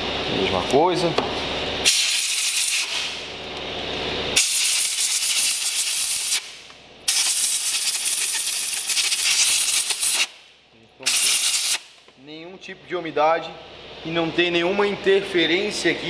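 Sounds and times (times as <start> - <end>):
compressed air blow gun hissing: 1.8 - 3.2, 4.4 - 6.5, 7.1 - 10.4, 11.0 - 11.9.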